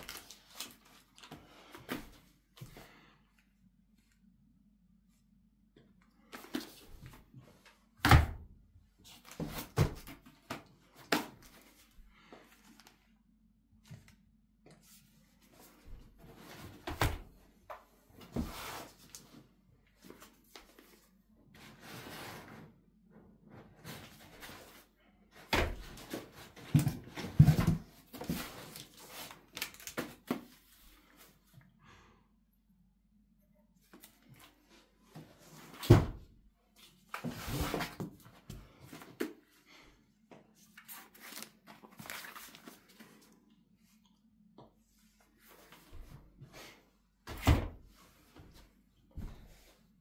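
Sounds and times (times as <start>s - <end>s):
plastic wrap and cardboard rustling: 0.0s - 2.2s, 25.7s - 30.9s, 40.6s - 43.4s.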